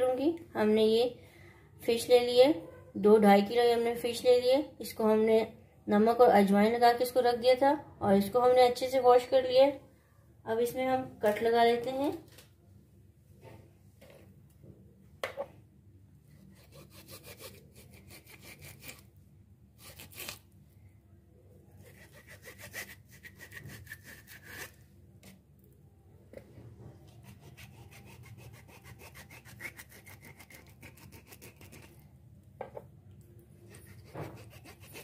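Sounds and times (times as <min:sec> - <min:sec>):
knife sawing through fish: 0:16.4 - 0:19.0, 0:19.8 - 0:20.4, 0:21.8 - 0:24.8, 0:27.1 - 0:32.0, 0:33.7 - 0:35.0.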